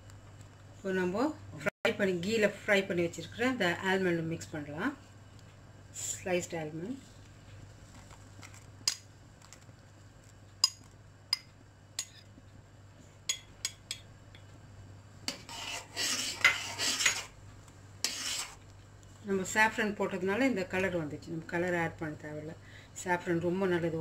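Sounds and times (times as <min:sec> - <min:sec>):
ladle stirring thick pudding: 0:15.2 - 0:19.2.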